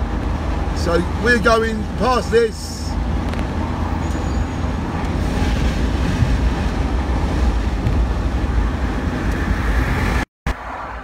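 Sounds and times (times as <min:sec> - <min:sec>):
road and engine rumble: 0:00.0 - 0:11.0
wind buffeting microphone: 0:04.6 - 0:10.2.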